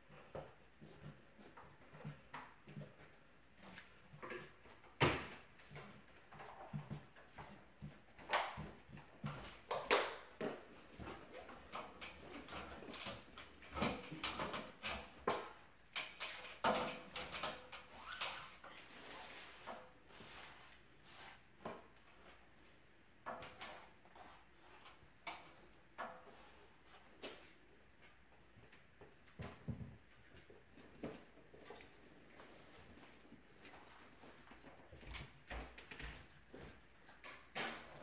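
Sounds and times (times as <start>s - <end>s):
wallpaper rustling and rubbing: 0.0s - 28.1s.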